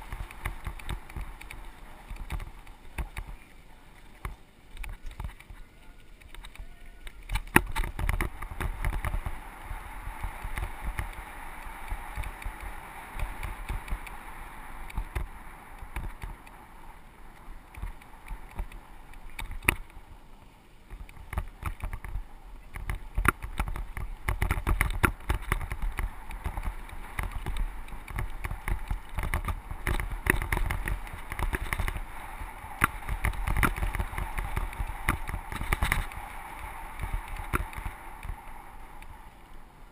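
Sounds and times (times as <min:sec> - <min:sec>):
bike clicking and rattling: 0:00.0 - 0:20.0, 0:20.8 - 0:39.9
bike tyres on dirt: 0:00.0 - 0:39.9
wind buffeting microphone: 0:20.9 - 0:39.9.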